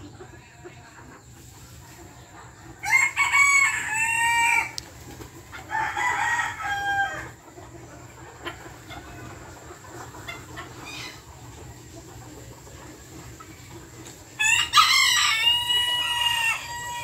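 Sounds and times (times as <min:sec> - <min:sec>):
rooster crowing: 0:02.8 - 0:04.8, 0:05.7 - 0:07.3, 0:14.4 - 0:17.0.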